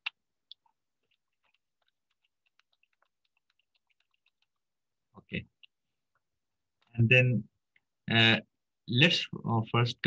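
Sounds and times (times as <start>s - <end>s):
keyboard typing: 0.0s - 4.7s.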